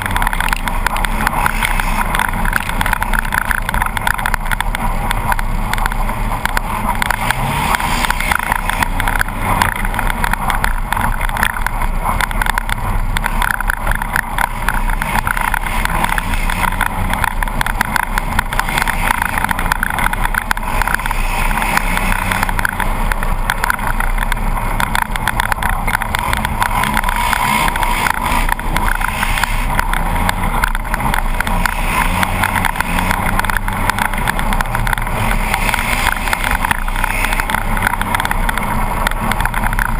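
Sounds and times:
engine revving at speed: 0:00.0 - 0:39.9
road and wind noise: 0:00.0 - 0:39.9.

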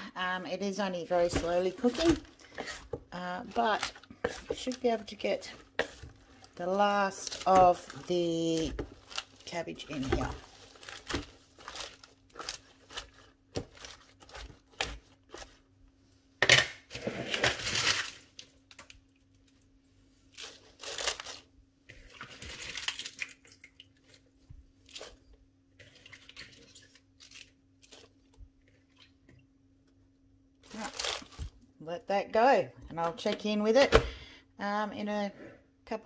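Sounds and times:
cabbage leaves crunching and rustling: 0:06.6 - 0:15.5, 0:20.4 - 0:21.5, 0:30.6 - 0:31.6.

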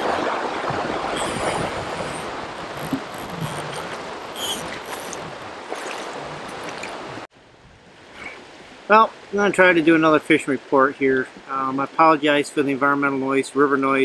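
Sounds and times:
river water rushing over riffle: 0:00.0 - 0:07.3.

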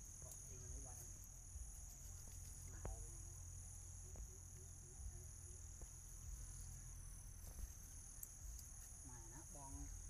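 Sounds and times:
crickets chirring: 0:00.0 - 0:10.0.

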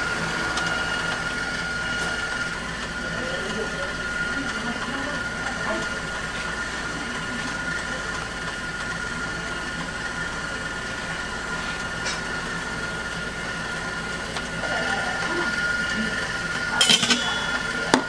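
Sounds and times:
high whine: 0:00.0 - 0:07.0, 0:11.2 - 0:18.0
kitchen machinery humming: 0:00.0 - 0:18.0.

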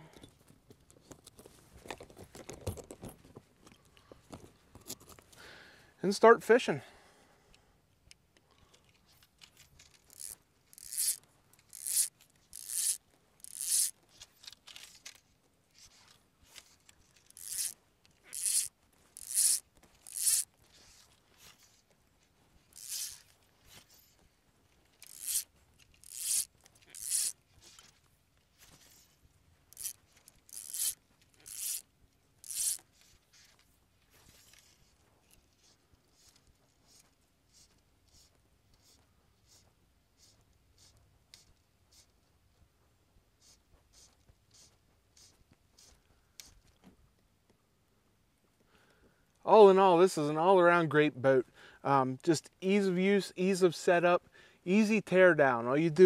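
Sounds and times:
fly line zipping through guides: 0:09.7 - 0:15.2, 0:15.8 - 0:21.8, 0:22.7 - 0:24.1, 0:24.9 - 0:28.0, 0:29.7 - 0:33.6, 0:34.3 - 0:42.2, 0:43.4 - 0:46.6.

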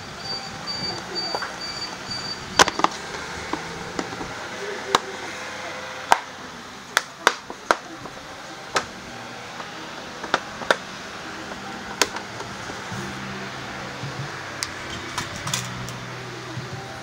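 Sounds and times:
plastic panels clicking: 0:14.6 - 0:16.0.

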